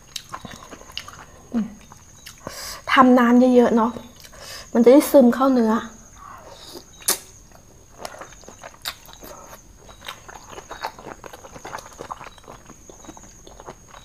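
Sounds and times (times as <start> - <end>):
wet chewing and lip smacks: 0.0 - 2.6, 6.6 - 14.0.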